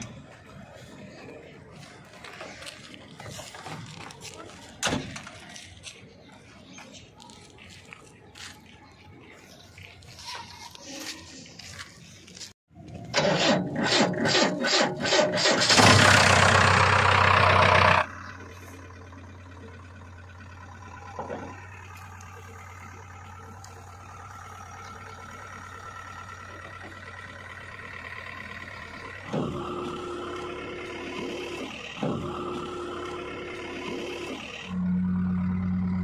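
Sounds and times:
diesel engine cranking and running: 12.8s - 36.0s.

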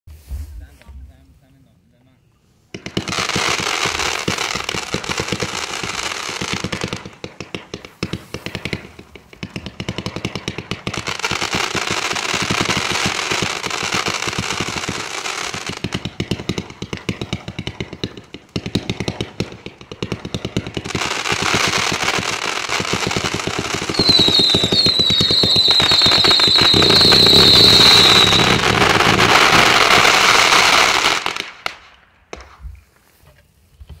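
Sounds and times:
fireworks shots and bursts: 2.7s - 32.6s
short high firework whistles: 23.6s - 31.6s.

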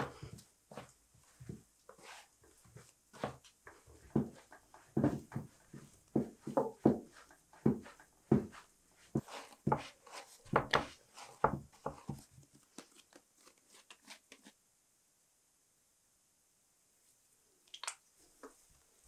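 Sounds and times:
dough kneaded against wood: 0.0s - 13.2s
hands scratching floured wood: 7.1s - 12.2s.

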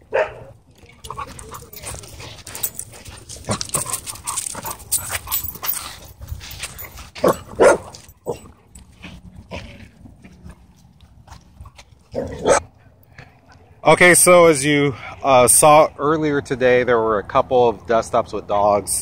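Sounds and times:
dog barks: 0.0s - 0.6s, 7.2s - 8.5s, 12.1s - 12.7s
scuffs and rustles: 1.0s - 12.2s
dogs tussling at play: 1.0s - 12.6s.

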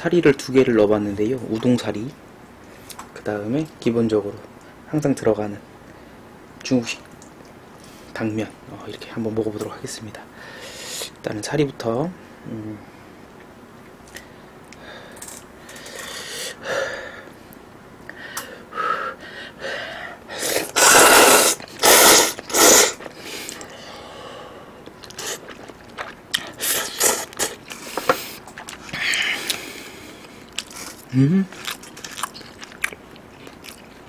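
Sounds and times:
noodles slurped: 20.4s - 23.7s, 25.0s - 32.8s
wet chewing: 24.8s - 34.0s.

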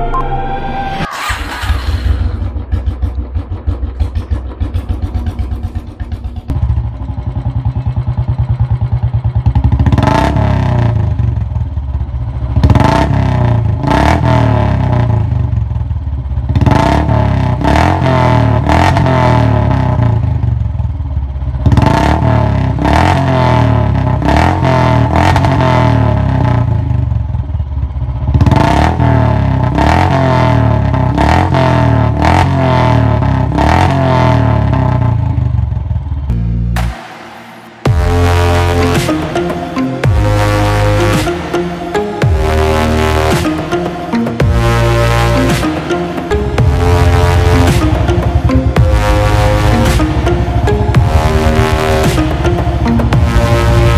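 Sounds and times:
exhaust cracks: 1.1s - 8.1s
motorcycle engine thumping idle: 2.0s - 10.1s.

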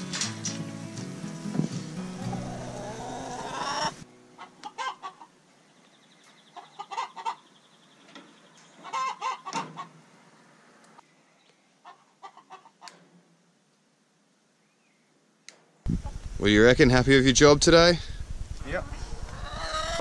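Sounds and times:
hens clucking: 0.2s - 5.4s, 6.5s - 7.5s, 8.8s - 10.0s, 11.8s - 13.0s, 18.8s - 20.0s.

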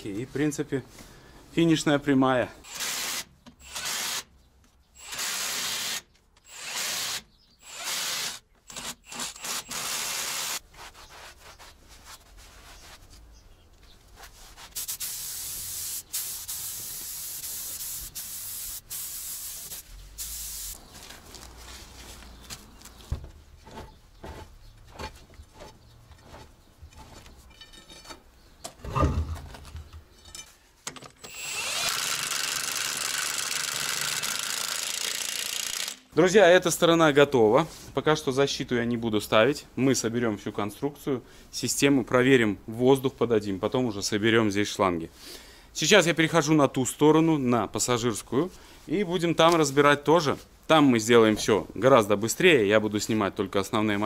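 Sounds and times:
impact wrench running: 31.2s - 36.1s.

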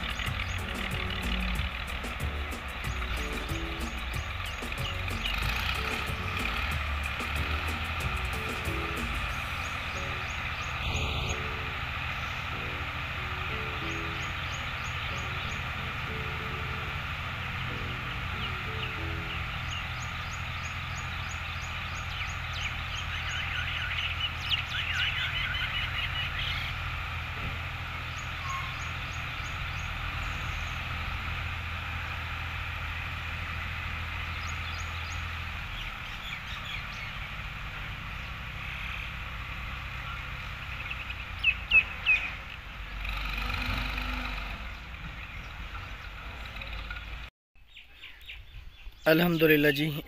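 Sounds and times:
low rumble: 0.0s - 42.0s
tractor engines humming: 0.0s - 47.3s, 49.1s - 50.0s
small birds chirping: 0.0s - 50.0s.

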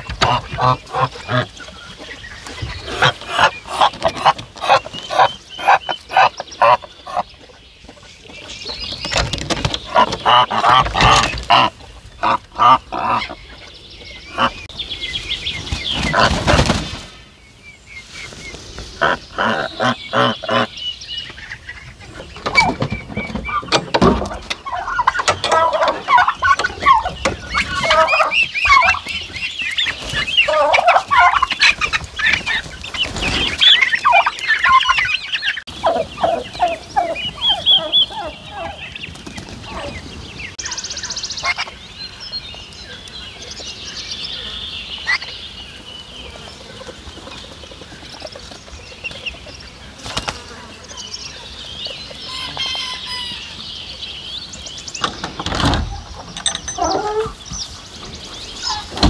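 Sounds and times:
birds clucking: 0.0s - 59.0s
turkeys gobbling: 0.1s - 7.2s, 9.8s - 13.6s, 14.3s - 14.6s, 19.0s - 20.7s, 23.4s - 32.9s, 33.6s - 40.0s, 41.4s - 41.8s, 52.1s - 53.5s, 56.0s - 57.4s
goose honking: 19.0s - 20.7s.

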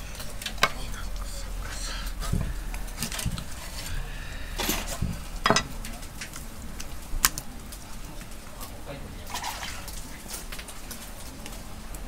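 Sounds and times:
kitchen utensils clattering: 1.6s - 6.4s.

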